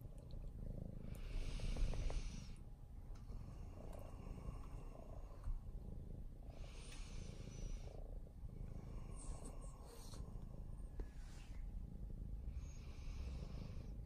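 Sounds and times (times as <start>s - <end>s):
cat purring: 0.0s - 14.0s
cat hissing softly: 9.0s - 11.7s.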